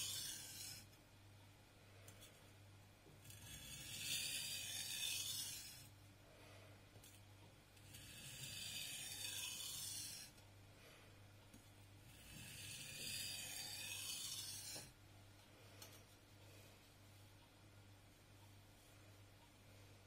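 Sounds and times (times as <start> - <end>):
knife scraping on whetstone: 0.0 - 0.9, 3.2 - 5.9, 7.8 - 10.3, 12.1 - 14.9.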